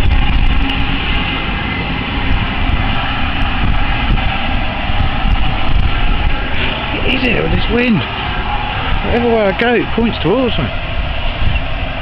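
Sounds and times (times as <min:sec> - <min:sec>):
large open flame rushing: 0:00.0 - 0:12.0
wind buffeting microphone: 0:00.0 - 0:12.0.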